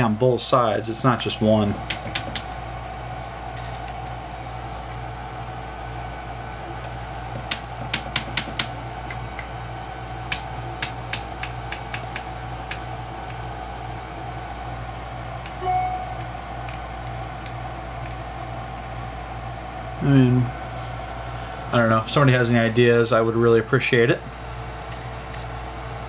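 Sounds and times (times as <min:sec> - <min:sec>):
printer bed clicking and knocking: 0:01.9 - 0:02.5
low hum: 0:15.5 - 0:16.6.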